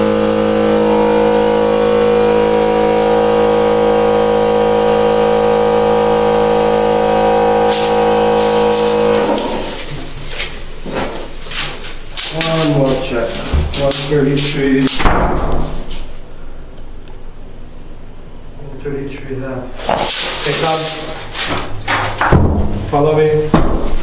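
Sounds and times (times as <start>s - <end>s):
air compressor running: 0.0s - 14.5s.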